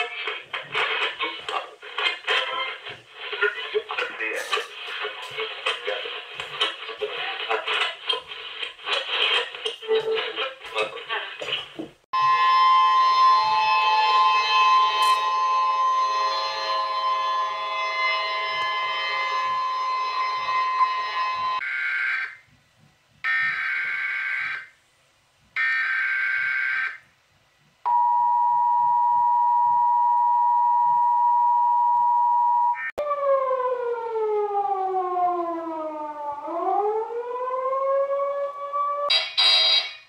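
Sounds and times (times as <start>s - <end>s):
harsh many-toned alert blaring: 12.2s - 21.6s, 39.1s - 40.0s
siren-like gliding tone: 12.2s - 21.6s
two-note alert tone: 12.2s - 21.6s.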